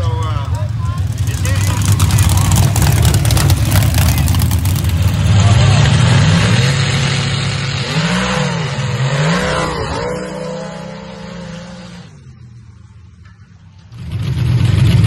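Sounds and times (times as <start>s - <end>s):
loud engine: 0.0s - 15.0s
engine revving hard: 1.2s - 12.2s.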